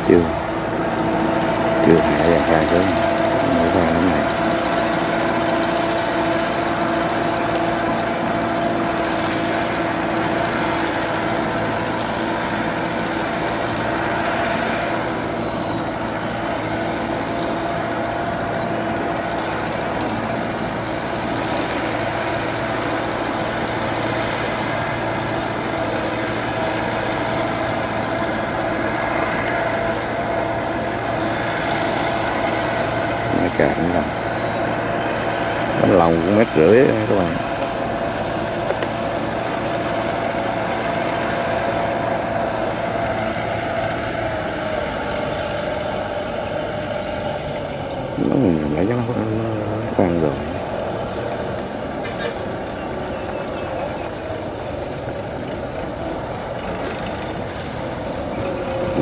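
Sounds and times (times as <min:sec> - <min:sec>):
steady hum: 0:00.0 - 0:59.0
tractor diesel engine running: 0:00.0 - 0:59.0.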